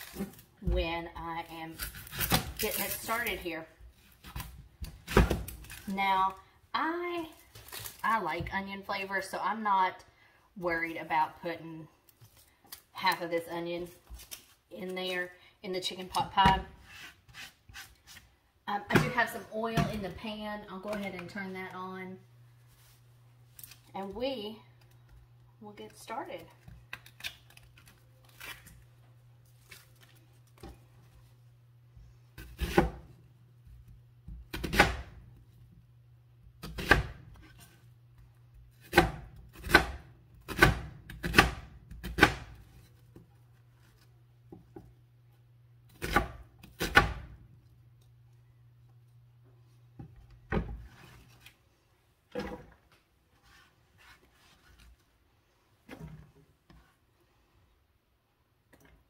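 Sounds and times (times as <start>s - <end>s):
knife chopping on plastic board: 38.8s - 42.6s.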